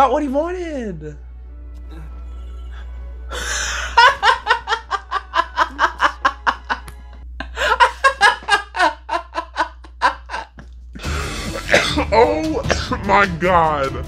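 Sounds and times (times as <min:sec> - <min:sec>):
man laughing hard: 0:03.4 - 0:10.6.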